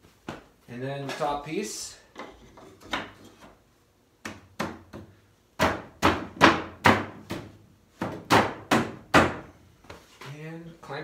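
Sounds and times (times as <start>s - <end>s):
wooden knocks on furniture frame: 4.3s - 9.5s.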